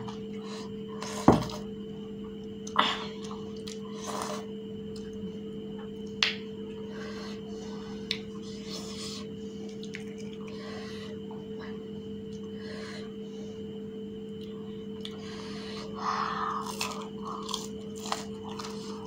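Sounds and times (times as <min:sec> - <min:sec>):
steady hum: 0:00.0 - 0:19.0
crunchy chewing: 0:07.0 - 0:11.3, 0:14.3 - 0:19.0.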